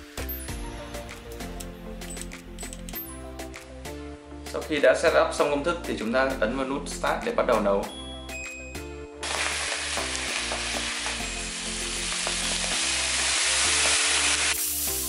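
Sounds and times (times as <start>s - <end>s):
grain pouring from plastic bag: 9.2s - 15.0s.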